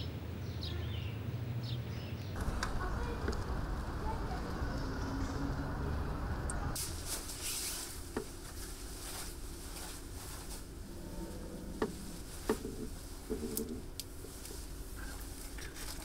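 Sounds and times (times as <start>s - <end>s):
equipment humming: 2.4s - 16.0s
rustling: 6.6s - 16.0s.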